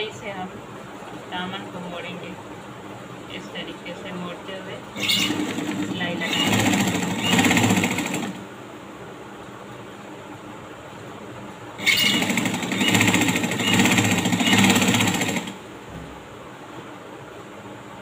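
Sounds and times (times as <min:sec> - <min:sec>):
sewing machine stitching: 0:04.9 - 0:08.5, 0:11.8 - 0:15.6.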